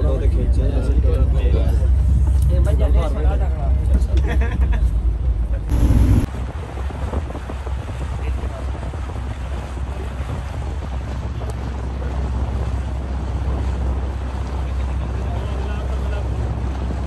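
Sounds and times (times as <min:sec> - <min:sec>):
boat engine rumble: 0:00.0 - 0:17.0
water washing along hull: 0:00.0 - 0:17.0
wind buffeting microphone: 0:05.2 - 0:17.0.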